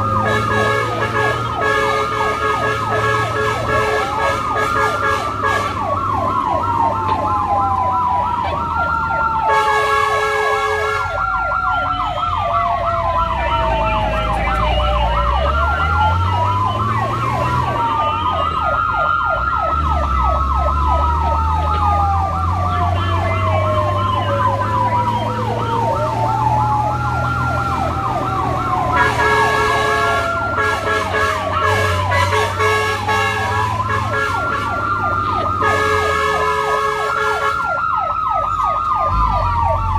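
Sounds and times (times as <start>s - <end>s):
fire engine siren yelp and wail: 0.0s - 39.9s
vehicle engine: 0.0s - 39.9s
vehicle horn blast: 0.3s - 5.8s, 9.5s - 11.2s, 28.9s - 34.8s, 35.6s - 37.6s.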